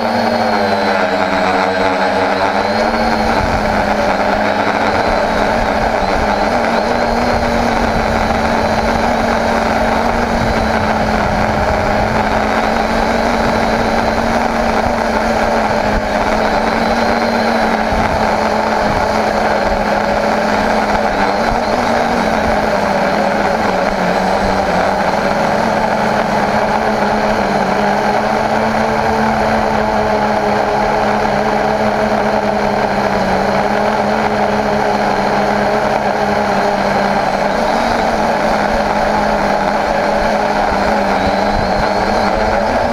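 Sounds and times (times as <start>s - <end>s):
drone propellers whirring: 0.0s - 42.9s.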